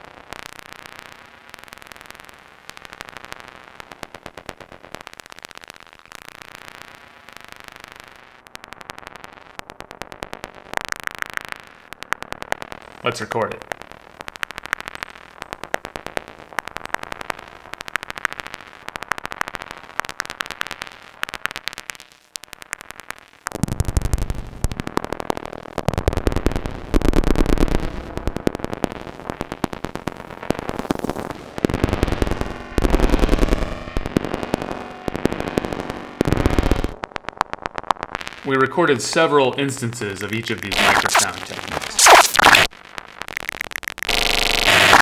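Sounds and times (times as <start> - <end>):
synthesizer clicking pulses: 40.7 - 42.7.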